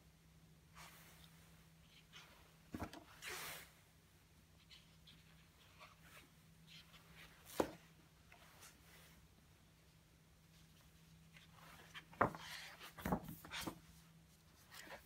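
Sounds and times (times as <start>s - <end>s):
paper sheets rustling: 11.4s - 15.0s.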